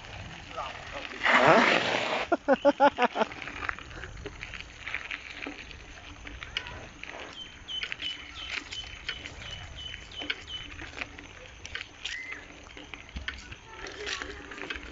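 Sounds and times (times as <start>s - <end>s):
footsteps on gravel: 0.0s - 14.9s
small birds chirping: 6.2s - 13.6s.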